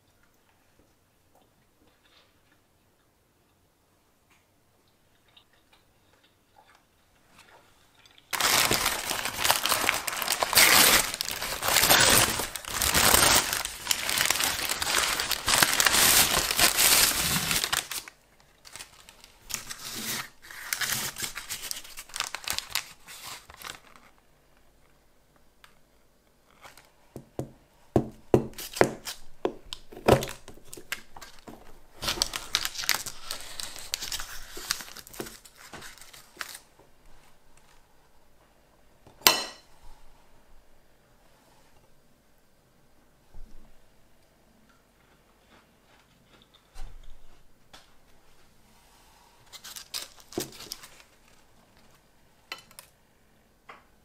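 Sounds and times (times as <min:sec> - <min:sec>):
light paper rustles: 0:08.3 - 0:24.2, 0:30.1 - 0:37.8, 0:49.5 - 0:52.0
packaging crinkling and tearing: 0:08.3 - 0:24.3, 0:28.5 - 0:36.7, 0:49.5 - 0:52.0
paper wrapper crinkling: 0:08.3 - 0:24.3, 0:28.5 - 0:37.8, 0:49.5 - 0:52.1.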